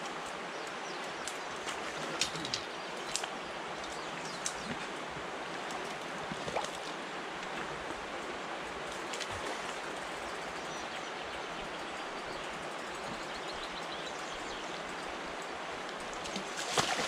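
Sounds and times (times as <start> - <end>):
river water flowing over rocks: 0.0 - 17.0.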